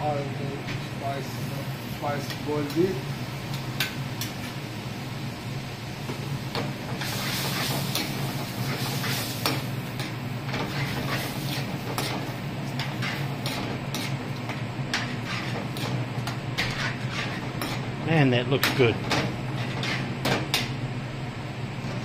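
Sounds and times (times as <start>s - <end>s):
steady low hum: 0.0s - 22.0s
curry frying in a pan: 0.4s - 18.0s
metal ladle scraping a pan: 14.9s - 15.9s, 16.6s - 17.8s, 19.6s - 20.1s.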